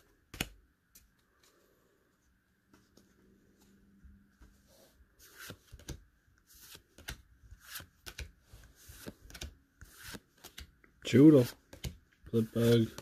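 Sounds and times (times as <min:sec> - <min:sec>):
cards being flipped by hand: 0:05.2 - 0:10.8.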